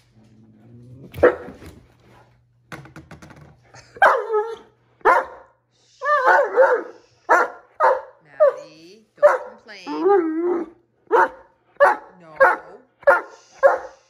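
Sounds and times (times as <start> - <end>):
puppy barking: 1.2 - 1.6, 4.0 - 10.0, 10.6 - 14.0.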